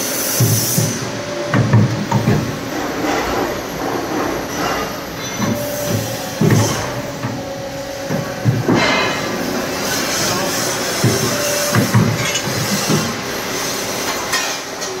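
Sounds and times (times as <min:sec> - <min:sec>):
pipe bending machine motors: 0:00.0 - 0:15.0
steady machine whine: 0:00.0 - 0:15.0
metallic clunks and knocks: 0:00.4 - 0:03.4, 0:04.1 - 0:09.4, 0:11.0 - 0:13.2.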